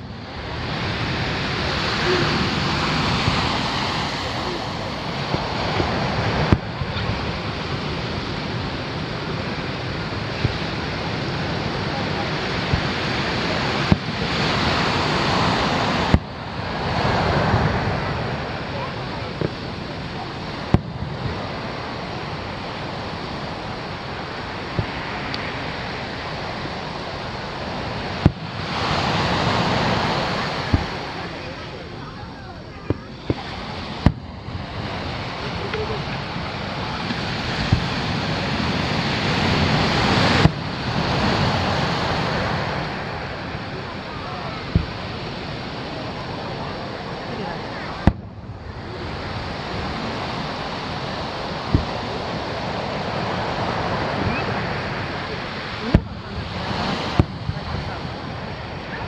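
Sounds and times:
rush of noise: 0.0s - 59.0s
surf washing on beach: 0.0s - 59.0s
firework bang: 4.5s - 7.6s, 12.0s - 22.5s, 27.8s - 31.6s, 32.8s - 43.4s, 44.6s - 45.4s, 47.9s - 48.6s, 51.6s - 52.6s, 53.7s - 58.2s
faint firework pops: 12.6s - 13.0s, 13.8s - 14.3s, 16.1s - 16.3s, 20.6s - 21.4s, 28.2s - 28.6s, 30.6s - 31.1s, 32.8s - 34.3s, 37.0s - 38.0s, 40.3s - 40.6s, 44.7s - 45.1s, 48.0s - 48.4s, 51.7s - 52.1s, 55.9s - 56.2s, 57.1s - 58.0s.

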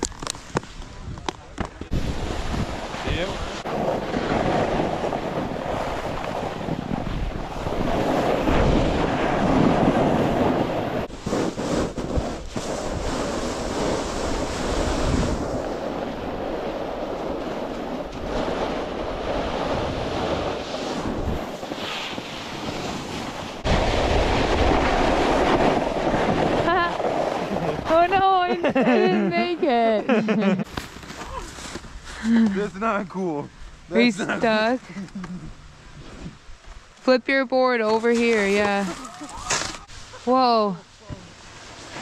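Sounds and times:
wind on microphone: 0.0s - 28.5s
snowboard scraping over snow: 1.9s - 34.8s, 37.8s - 42.0s.

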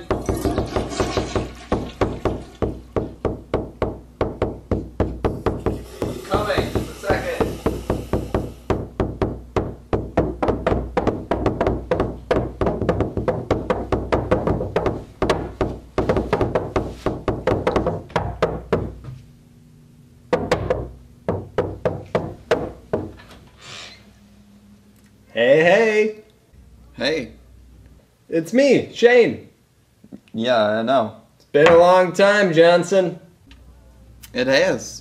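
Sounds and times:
rapid knocking on a door: 0.0s - 19.1s, 20.3s - 23.2s.

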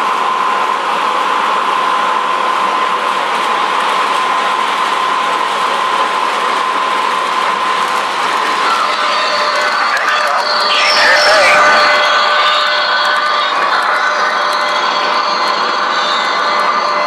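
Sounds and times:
high whine: 5.0s - 17.0s.

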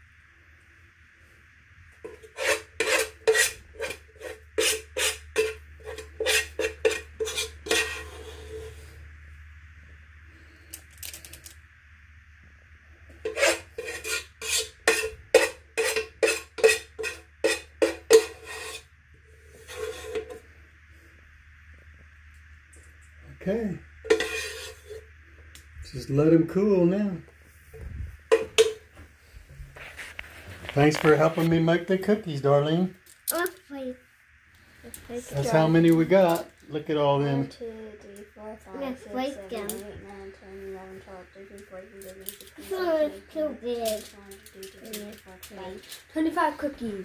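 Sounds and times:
spoon scraping sticky mixture: 2.0s - 8.8s.

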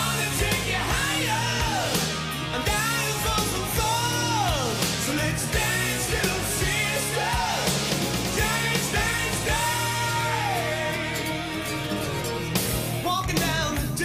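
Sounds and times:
person singing: 0.0s - 12.4s
metal song with band: 0.0s - 14.0s.

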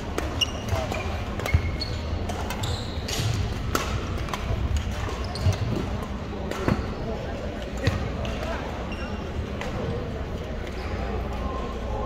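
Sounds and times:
racket striking shuttlecock: 0.0s - 5.6s
sneakers squeaking: 0.0s - 11.6s
murmur of voices: 0.0s - 12.0s.

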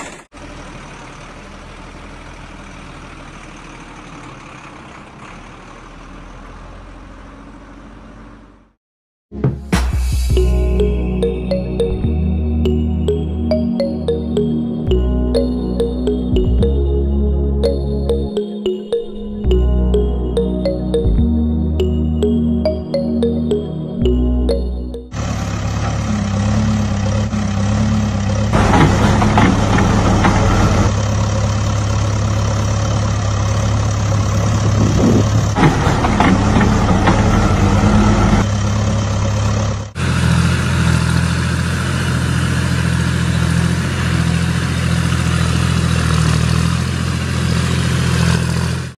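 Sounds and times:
diesel engine running: 0.0s - 8.7s, 19.5s - 48.9s
engine revving: 25.1s - 48.9s.

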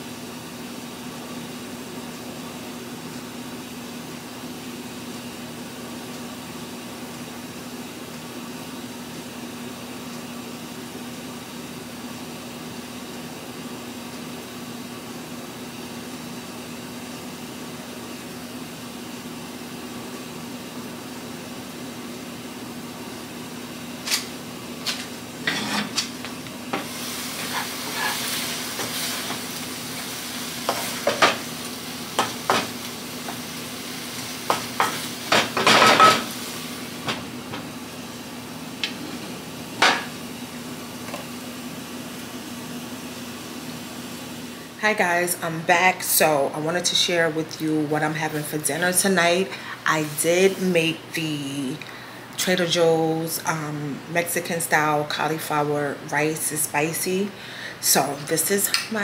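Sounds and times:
food sizzling: 0.1s - 51.8s
wooden spoon scraping a pan: 27.3s - 29.4s.

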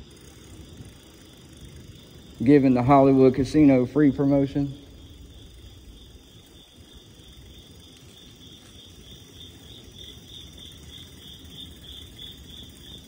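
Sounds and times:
crickets chirping: 0.0s - 13.0s
low rumble of bicycle rolling: 0.0s - 13.0s.

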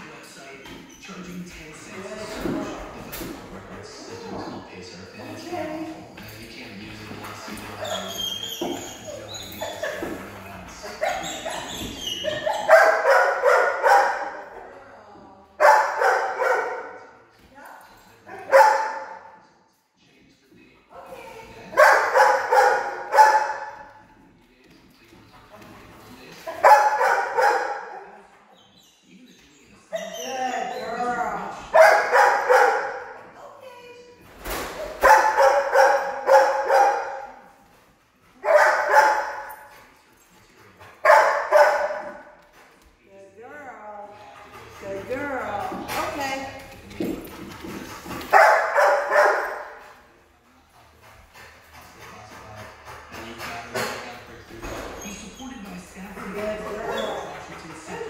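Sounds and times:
dog barking: 12.4s - 14.6s, 15.6s - 17.0s, 18.3s - 19.4s, 21.7s - 23.8s, 26.5s - 28.1s, 31.7s - 33.2s, 34.9s - 37.5s, 38.4s - 39.6s, 41.0s - 42.3s, 48.3s - 49.8s.

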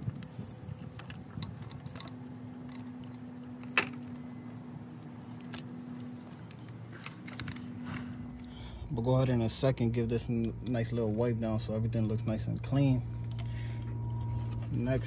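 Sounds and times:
faint steady hum: 0.0s - 15.0s
plastic clips clicking and rattling: 5.3s - 8.0s.

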